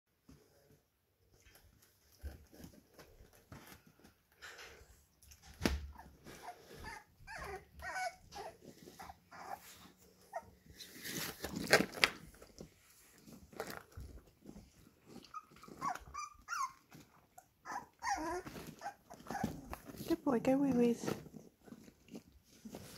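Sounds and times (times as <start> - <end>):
puppies whimpering and squeaking: 5.9 - 11.2, 14.8 - 20.2.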